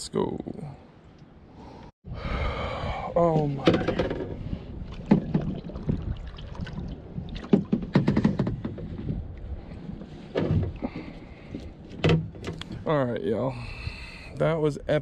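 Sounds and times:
low water noise: 1.2 - 12.9
knocks against plastic kayak hull: 7.4 - 9.0.

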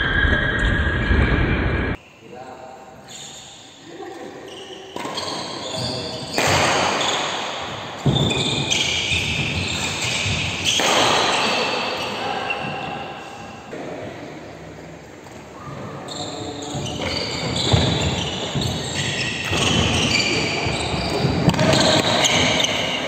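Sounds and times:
high shoe squeaks: 3.0 - 3.8, 4.4 - 13.2, 15.9 - 23.0.

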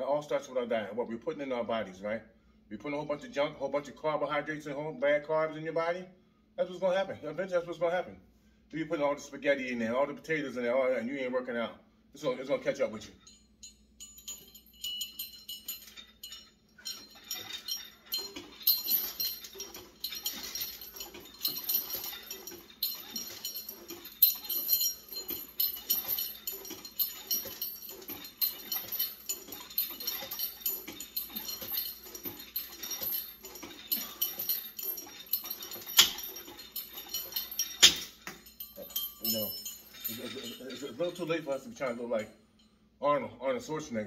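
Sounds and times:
chain and handle rattling: 12.6 - 42.8
metal clanks: 13.2 - 41.4.

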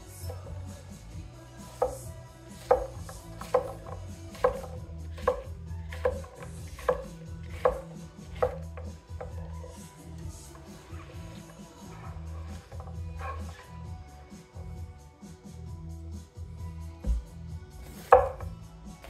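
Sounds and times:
knife chopping on wooden board: 1.7 - 9.6, 12.0 - 13.6, 17.0 - 18.6.

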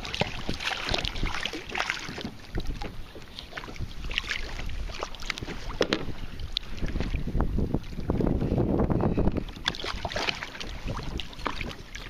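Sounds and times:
water lapping against a kayak: 0.0 - 12.0
wind buffeting microphone: 0.0 - 12.0.

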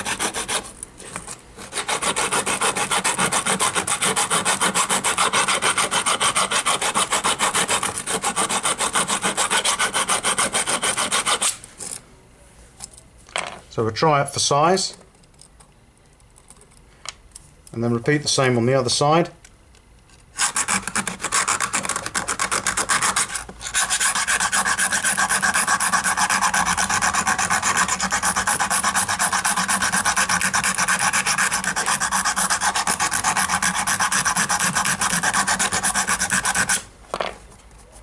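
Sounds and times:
needle file rasping on metal: 0.0 - 0.7, 1.6 - 11.6, 20.4 - 36.8.

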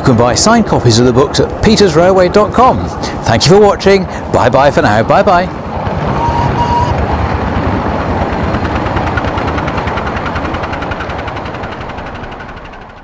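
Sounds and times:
steam locomotive chuffing: 8.4 - 13.0.

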